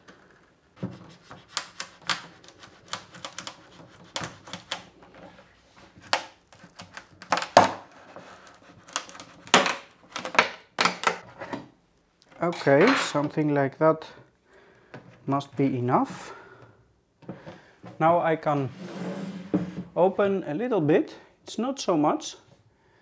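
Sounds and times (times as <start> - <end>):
glue joint cracking and snapping: 1.2 - 4.9, 6.0 - 7.8, 8.4 - 11.2.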